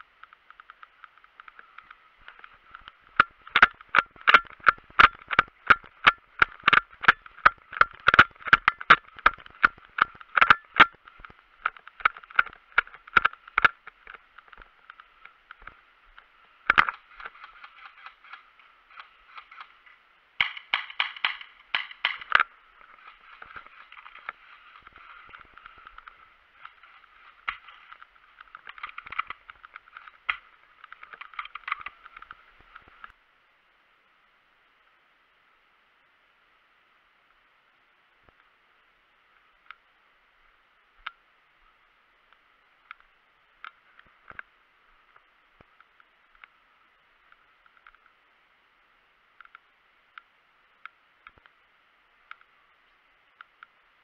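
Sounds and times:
clicks: 0:00.0 - 0:33.2
muffled hiss: 0:00.0 - 0:54.0
gear knocking: 0:01.6 - 0:33.1.

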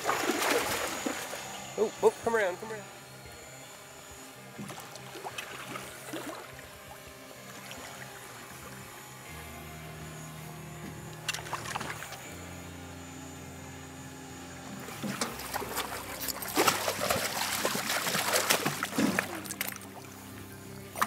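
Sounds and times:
background music low notes: 0:00.0 - 0:21.0
fish splashing at surface: 0:15.3 - 0:19.9.

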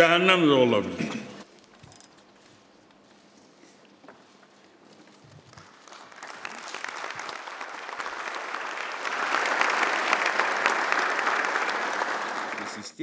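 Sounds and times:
audience applauding: 0:05.4 - 0:13.0.

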